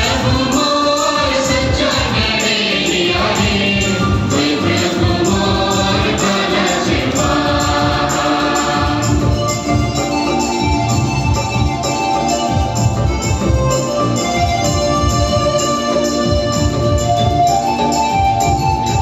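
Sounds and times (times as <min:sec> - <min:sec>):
group of voices singing: 0:00.0 - 0:10.5
steady drumbeat: 0:00.0 - 0:19.0.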